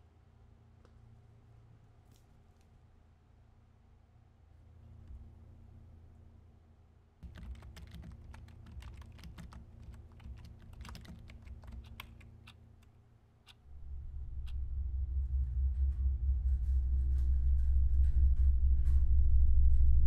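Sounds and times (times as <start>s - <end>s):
typing on computer keyboard: 7.2s - 12.6s
low rumble: 13.7s - 20.0s.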